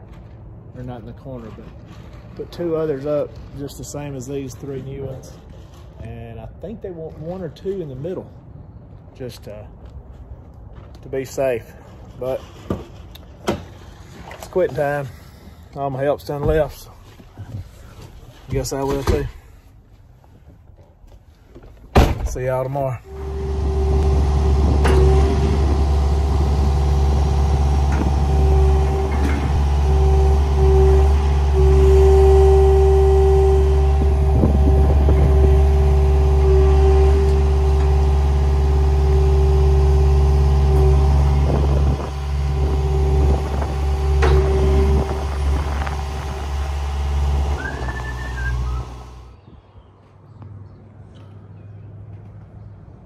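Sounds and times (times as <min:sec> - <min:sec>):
diesel engine running under load: 0:23.0 - 0:49.4
steady tone above engine: 0:23.0 - 0:49.4.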